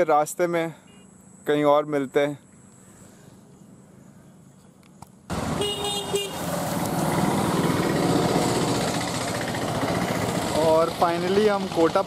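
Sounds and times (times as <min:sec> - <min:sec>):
vehicle engines running: 0:02.5 - 0:12.0
vehicle horn honking: 0:05.6 - 0:06.5.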